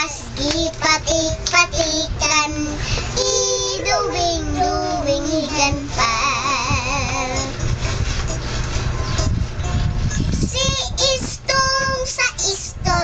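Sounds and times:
girl singing: 0:00.0 - 0:07.6, 0:10.2 - 0:13.0.

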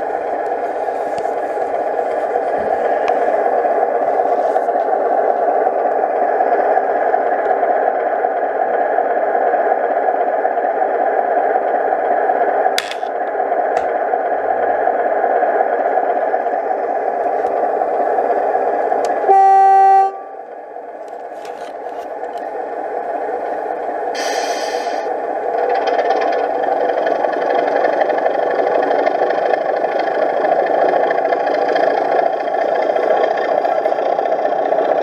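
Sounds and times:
horn blast: 0:19.3 - 0:20.4.

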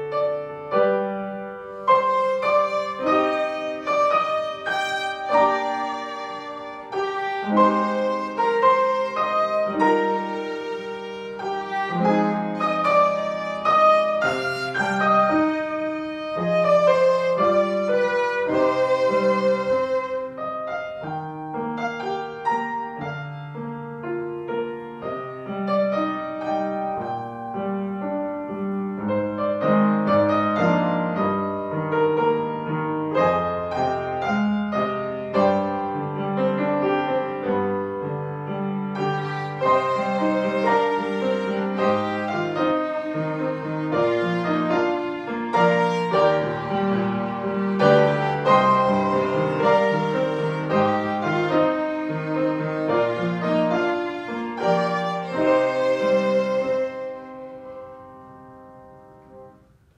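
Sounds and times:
violin melody: 0:00.0 - 0:59.5
piano playing: 0:00.0 - 0:59.9.

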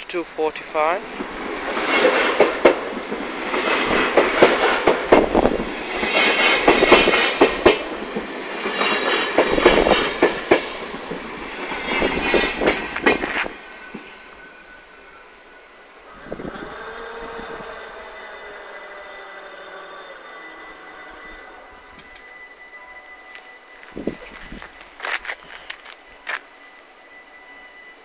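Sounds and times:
train wheels clattering over rail joints: 0:01.2 - 0:14.1.

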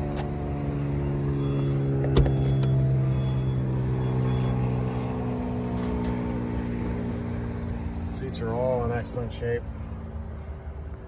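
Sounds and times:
low mechanical hum: 0:00.0 - 0:11.0
tailgate rising: 0:01.4 - 0:03.5.

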